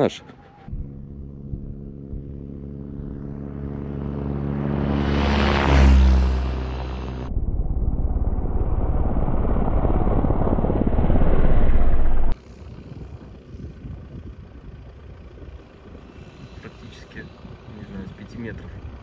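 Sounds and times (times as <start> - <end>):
glider takeoff rushing rumble: 0.6 - 16.6
wind on microphone: 7.2 - 19.0.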